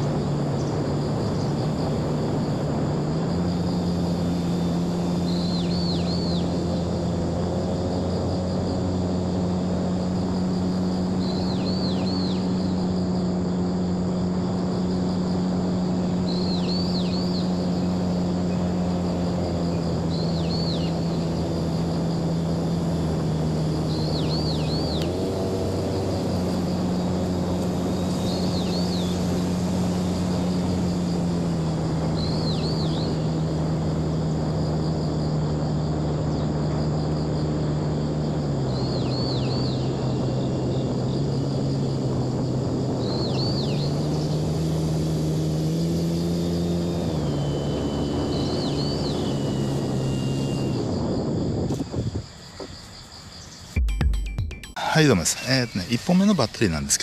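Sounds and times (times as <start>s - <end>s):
model airplane motor buzzing: 12.2s - 38.5s, 39.1s - 52.0s.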